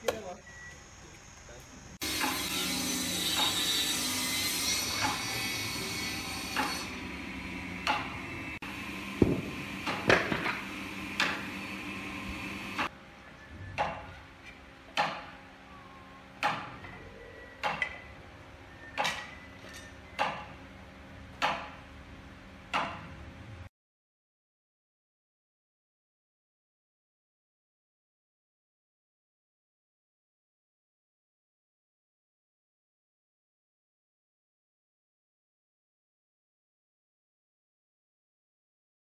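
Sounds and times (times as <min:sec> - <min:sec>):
steady shop hum: 0:00.1 - 0:23.7.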